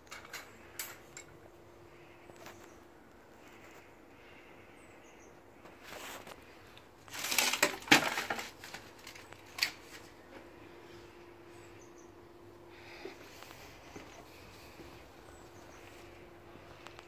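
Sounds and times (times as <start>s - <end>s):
plastic crate rustle: 5.8s - 10.2s.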